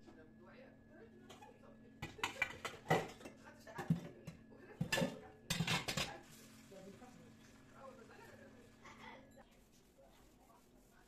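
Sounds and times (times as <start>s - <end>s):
metal pots and lids clattering: 1.3s - 4.1s, 4.8s - 6.2s.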